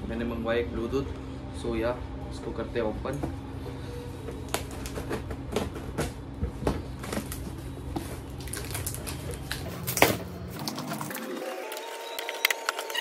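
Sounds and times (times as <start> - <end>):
steady low hum: 0.0 - 10.6
cardboard parcel torn open: 8.2 - 13.0.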